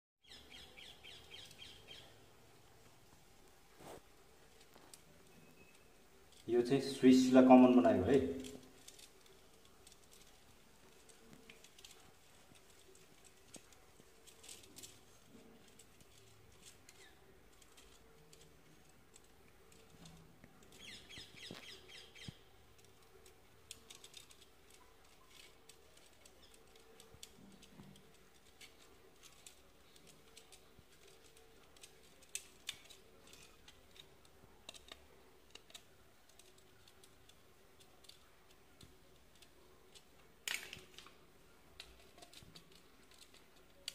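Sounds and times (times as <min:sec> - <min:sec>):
bird chirping: 0:00.2 - 0:02.3, 0:05.2 - 0:07.0, 0:20.6 - 0:22.6.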